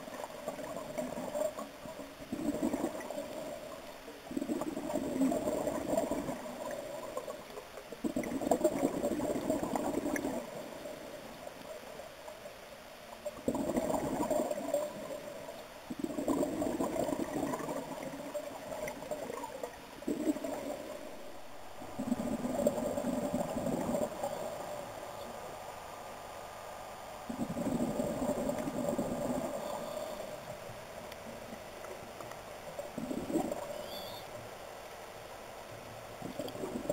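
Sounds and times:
bubbles gurgling: 0.0 - 11.1, 13.2 - 24.6, 27.3 - 29.8, 32.8 - 33.9, 36.2 - 36.9.

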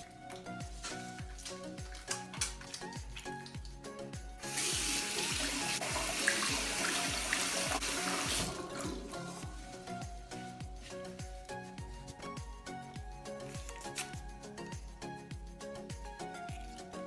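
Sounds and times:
background music with steady beat: 0.0 - 17.0
tap water running: 4.4 - 9.6.

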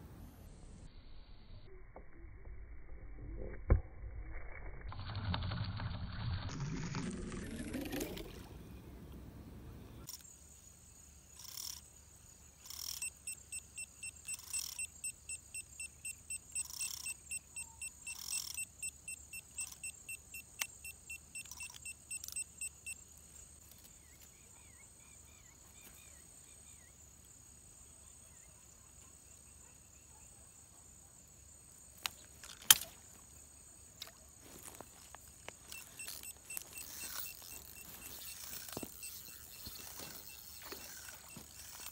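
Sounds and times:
insects trilling: 10.0 - 41.9
short repeated insect calls: 10.0 - 41.9
sharp click: 32.0 - 32.9.

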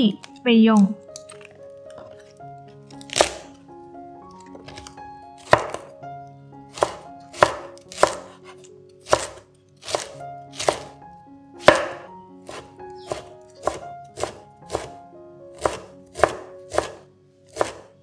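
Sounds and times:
soft background music: 0.0 - 18.0
knife chopping on wooden board: 3.0 - 3.6, 4.6 - 5.9, 6.7 - 11.0, 11.6 - 15.0, 15.6 - 17.9.

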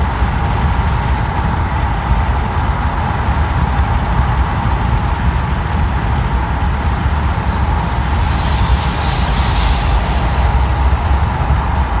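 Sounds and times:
low rumble inside moving car: 0.0 - 12.0.

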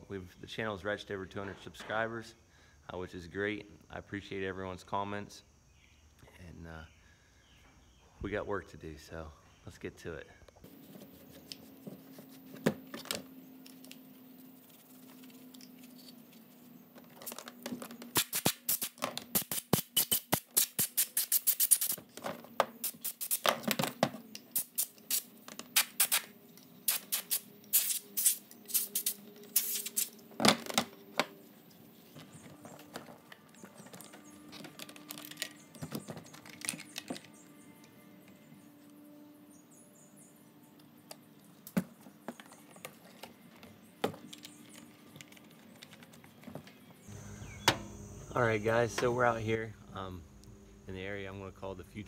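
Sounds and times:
soft background music: 28.4 - 47.1.

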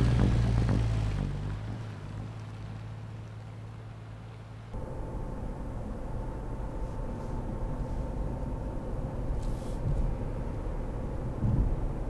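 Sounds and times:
engine and road noise rumble: 0.0 - 12.0
faint steady drone: 0.0 - 12.0
brief hiss: 9.4 - 10.0.

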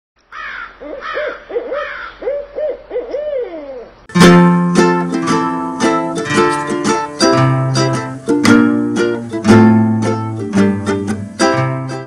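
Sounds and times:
owl hooting: 0.3 - 4.0
ukulele music: 4.1 - 12.0.

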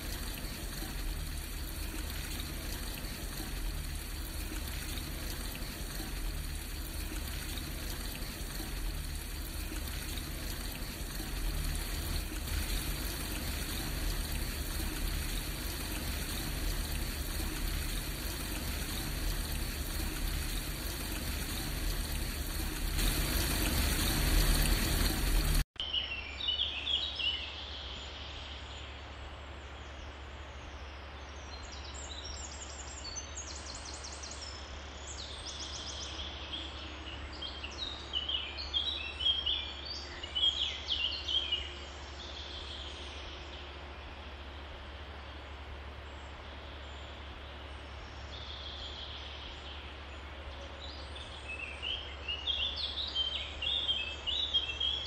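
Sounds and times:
waterfall rushing: 0.0 - 25.6.

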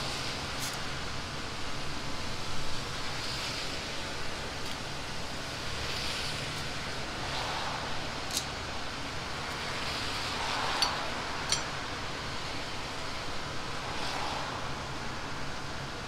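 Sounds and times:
metal clinks: 10.8 - 11.8.

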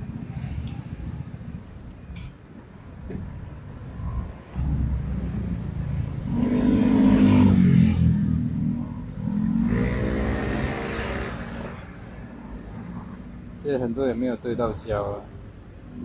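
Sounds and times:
vehicle engines passing close: 0.0 - 16.0.

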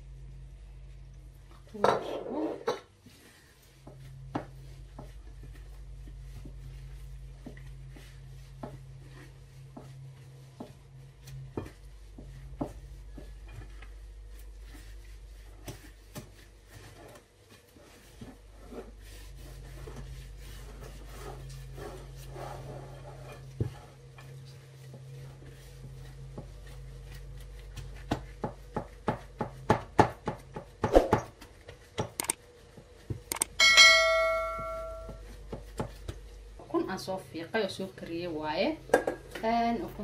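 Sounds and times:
hand rubbing dough in bowl: 2.9 - 40.0
bell-like notification ding: 33.6 - 35.2.

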